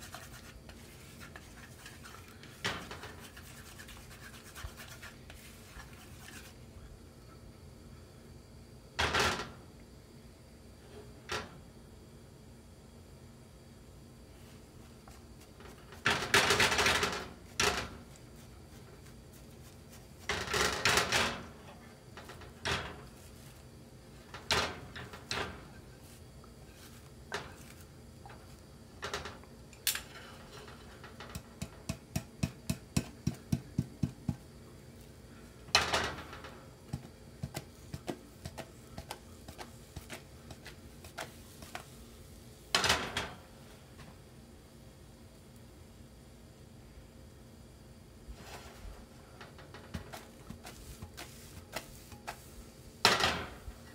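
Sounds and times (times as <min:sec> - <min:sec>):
utensil scraping frying pan: 0:00.0 - 0:06.6.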